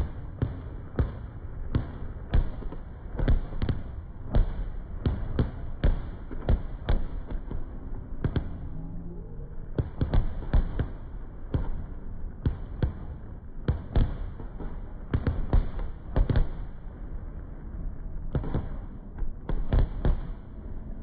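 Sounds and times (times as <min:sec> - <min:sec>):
continuous low rumble: 0:00.0 - 0:21.0
fireworks bangs: 0:09.7 - 0:16.9, 0:18.3 - 0:20.4.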